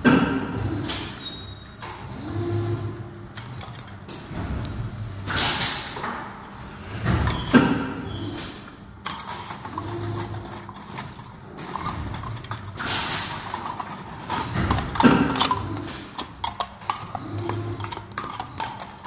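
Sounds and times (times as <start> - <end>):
plastic cups clattering: 9.0 - 19.0.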